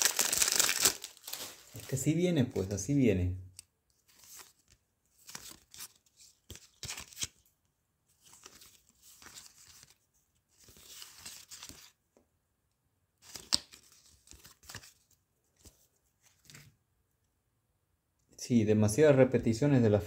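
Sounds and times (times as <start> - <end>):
foil packets tearing and crinkling: 0.0 - 1.9.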